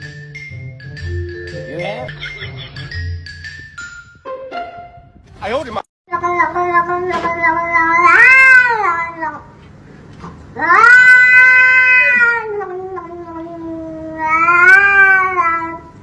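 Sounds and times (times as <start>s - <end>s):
cat yowling: 6.1s - 9.5s, 10.6s - 15.9s.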